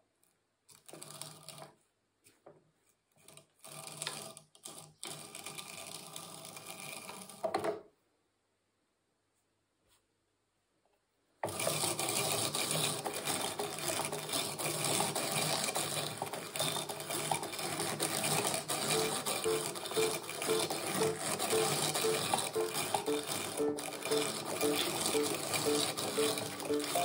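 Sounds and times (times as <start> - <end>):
hand-cranked drum carder rattling: 13.3 - 27.0.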